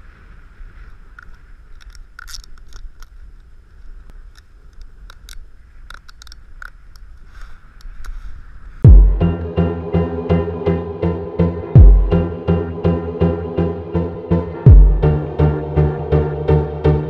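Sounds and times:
snowboard shifting in powder snow: 0:00.0 - 0:06.5
snow crunches and clicks: 0:00.0 - 0:08.8
low rumble: 0:08.8 - 0:17.0.

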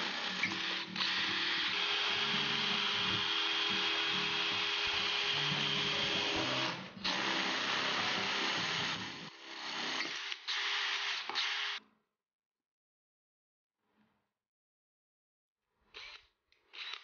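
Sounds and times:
electric drill drilling metal: 0:00.0 - 0:11.8, 0:16.0 - 0:17.0.

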